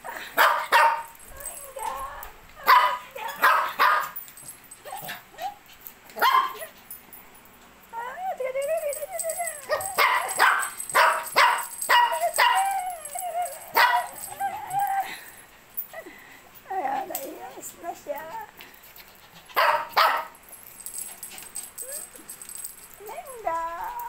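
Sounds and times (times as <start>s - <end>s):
dogs barking: 0.3s - 1.2s, 2.6s - 4.2s, 6.2s - 6.7s, 9.7s - 12.7s, 13.7s - 14.3s, 19.5s - 20.4s
dog whining: 11.4s - 17.3s.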